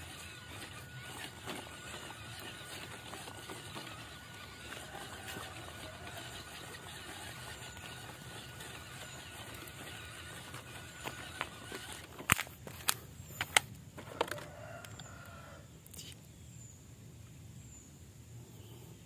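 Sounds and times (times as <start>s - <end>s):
tyres clicking on rocks: 0.0s - 15.1s
electric motor whine: 0.0s - 15.5s.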